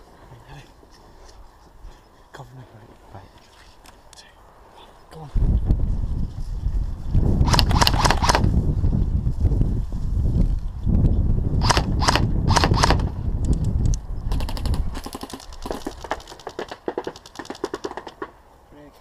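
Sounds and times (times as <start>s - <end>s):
wind rumble on microphone: 5.2s - 16.3s
airsoft guns firing: 11.6s - 13.1s, 14.3s - 18.4s.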